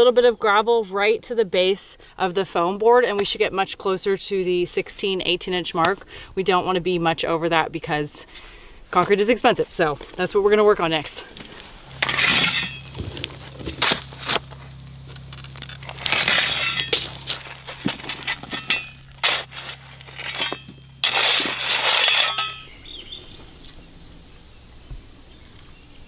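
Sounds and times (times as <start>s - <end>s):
steady low hum: 0.3s - 26.0s
shovel scraping gravel: 11.4s - 22.8s
stones clinking: 11.9s - 22.7s.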